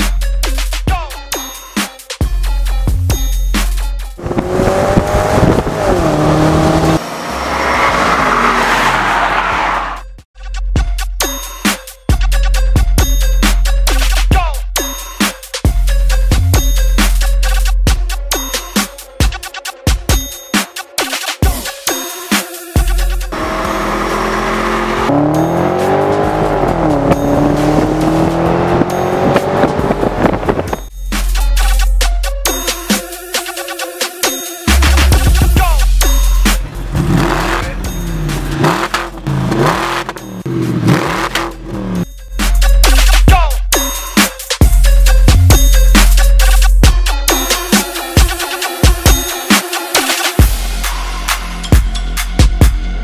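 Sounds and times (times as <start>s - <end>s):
car exhaust accelerating: 4.2s - 10.0s, 23.3s - 30.9s, 36.2s - 42.1s.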